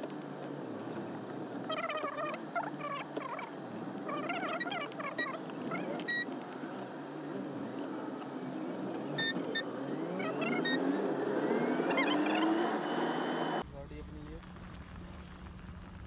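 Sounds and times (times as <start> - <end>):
car engine: 0.0 - 16.0
road noise: 0.0 - 16.0
short high beeps: 6.0 - 6.3, 7.9 - 10.9.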